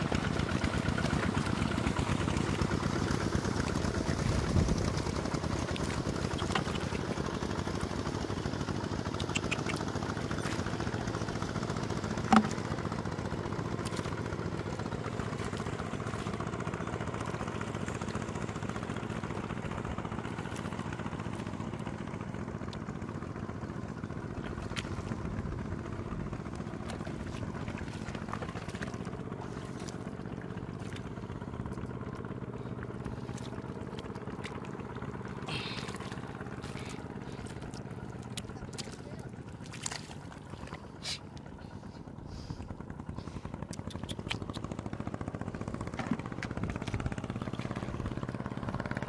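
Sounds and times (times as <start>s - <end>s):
hands squelching in mud: 0.0s - 19.6s, 24.3s - 44.9s
low engine drone: 0.0s - 49.0s.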